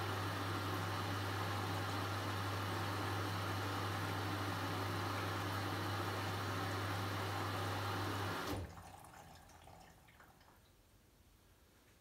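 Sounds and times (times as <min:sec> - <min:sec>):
water rushing into washing machine: 0:00.0 - 0:10.6
water trickling: 0:08.6 - 0:10.8.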